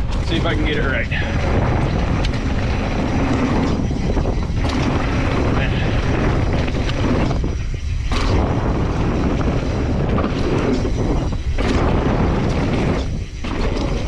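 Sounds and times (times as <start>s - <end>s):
knobby tyres on loose dirt: 0.0s - 14.0s
wind rumble on microphone: 0.0s - 14.0s.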